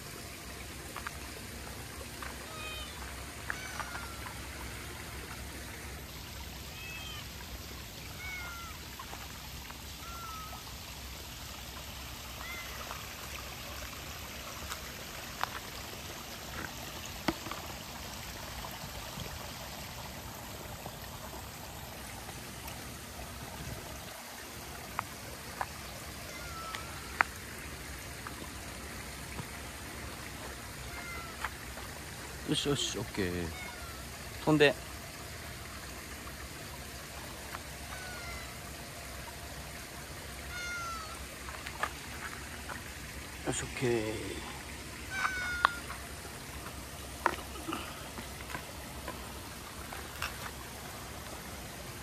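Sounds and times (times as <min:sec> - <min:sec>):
rainwater running: 0:00.0 - 0:52.0
cat mewing: 0:02.5 - 0:04.3, 0:08.1 - 0:08.8, 0:10.0 - 0:10.6, 0:26.3 - 0:27.1, 0:30.9 - 0:31.4, 0:33.5 - 0:34.0, 0:37.9 - 0:38.5, 0:40.5 - 0:41.2, 0:45.1 - 0:45.9.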